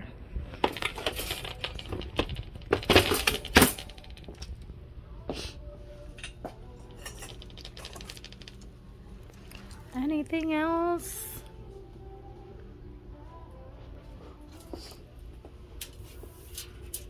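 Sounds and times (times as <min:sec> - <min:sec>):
light clinks and knocks: 0:06.2 - 0:08.7.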